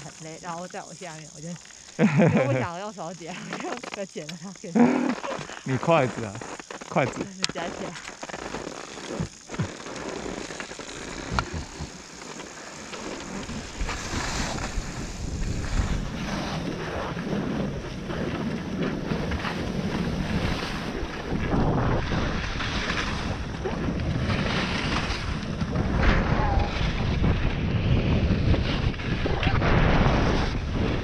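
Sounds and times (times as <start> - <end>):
skis sliding over snow: 0.0 - 31.0
wind buffeting microphone: 13.4 - 31.0.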